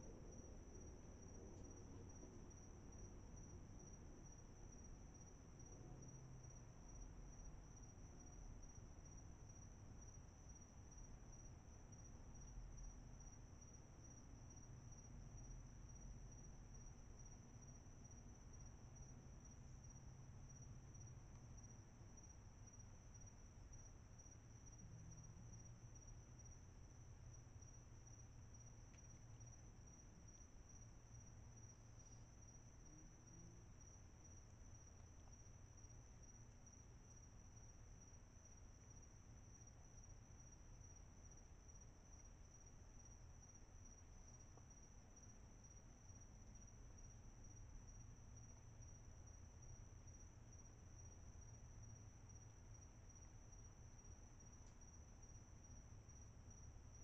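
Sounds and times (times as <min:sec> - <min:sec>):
faint low rumble: 0:00.0 - 0:57.0
night insects trilling: 0:00.1 - 0:57.0.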